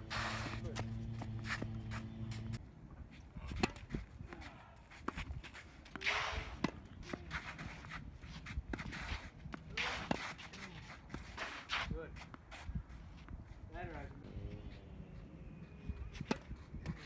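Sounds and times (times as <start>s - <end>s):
shoes scuffing on court: 0.0s - 2.6s, 4.4s - 13.6s.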